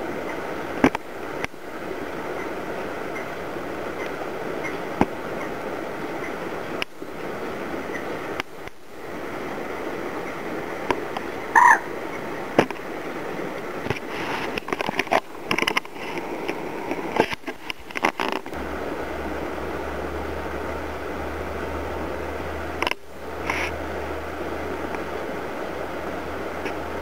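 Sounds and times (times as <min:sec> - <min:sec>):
steady low hum: 0:00.0 - 0:27.0
stream ambience: 0:00.0 - 0:27.0
short animal call: 0:11.5 - 0:11.9.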